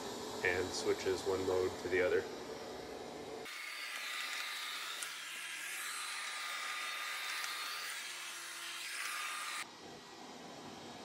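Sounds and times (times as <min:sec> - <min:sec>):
robot vacuum whirring: 0:03.4 - 0:09.7.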